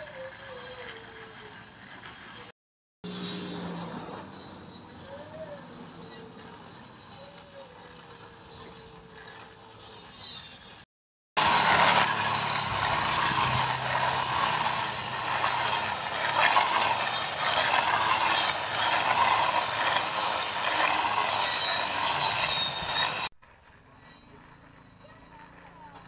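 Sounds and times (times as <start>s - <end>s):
string trimmer cutting grass: 3.0s - 23.3s.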